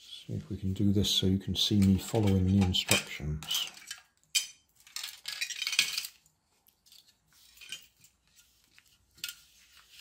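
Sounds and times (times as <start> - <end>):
plastic parts clattering: 1.6 - 10.0.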